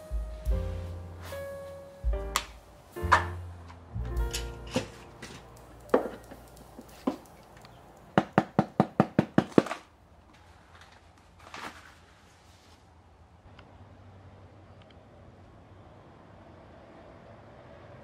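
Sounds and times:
faint scuffing: 0.2s - 3.3s.

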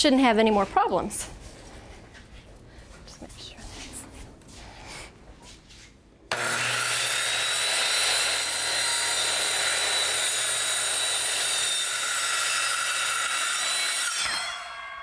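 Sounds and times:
circular saw cutting a board: 6.3s - 15.0s.

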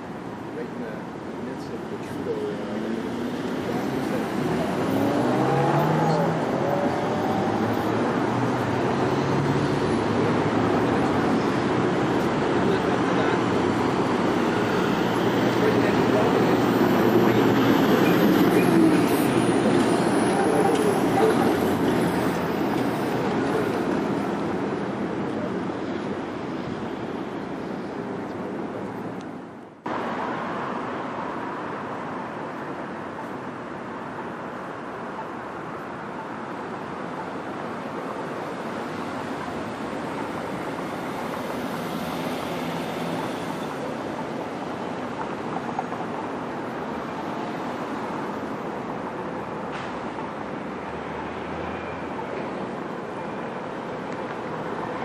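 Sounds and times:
heavy trucks passing: 2.5s - 28.7s, 38.1s - 55.0s.

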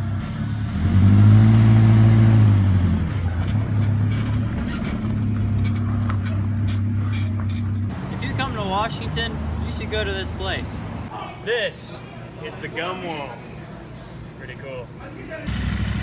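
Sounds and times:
pickup truck engine revving: 0.0s - 7.1s.

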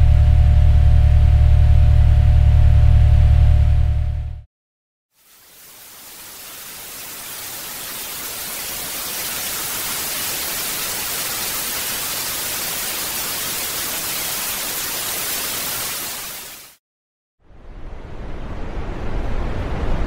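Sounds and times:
white noise hiss: 5.2s - 16.7s.

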